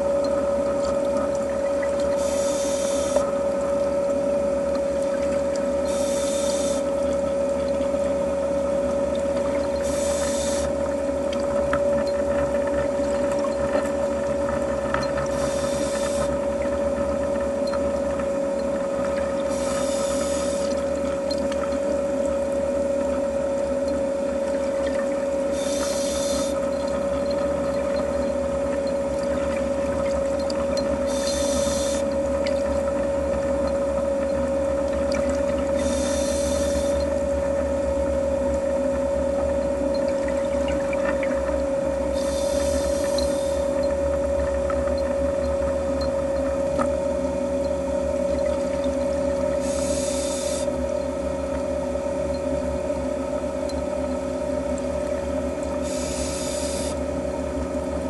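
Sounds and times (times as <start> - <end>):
steady underwater hum: 0.0 - 58.0
regulator breathing hiss: 2.2 - 3.3, 5.9 - 6.9, 9.8 - 10.8, 15.3 - 16.4, 19.5 - 20.7, 25.5 - 26.6, 31.1 - 32.1, 35.8 - 37.0, 42.1 - 43.8, 49.6 - 50.7, 55.8 - 57.0.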